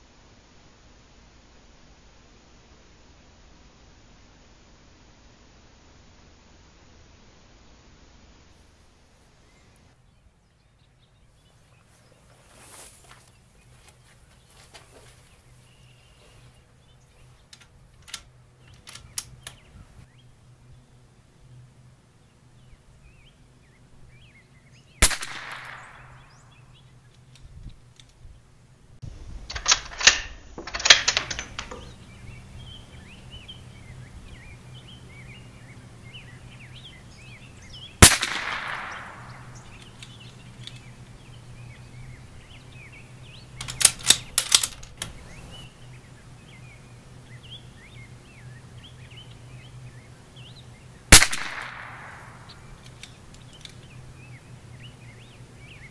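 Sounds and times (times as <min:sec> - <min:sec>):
rifle bolt clicks: 0:17.5 - 0:19.6, 0:25.0 - 0:26.2, 0:29.5 - 0:31.9, 0:38.0 - 0:41.1, 0:43.6 - 0:45.4, 0:51.2 - 0:53.9
rifle shots echoing: 0:25.0 - 0:26.9, 0:36.1 - 0:41.0, 0:51.1 - 0:52.9.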